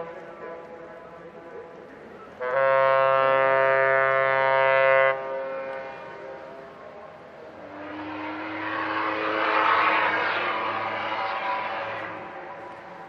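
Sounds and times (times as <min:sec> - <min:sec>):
ship's horn blast: 0:02.3 - 0:13.0
steam whistle: 0:02.4 - 0:06.3, 0:07.6 - 0:13.0.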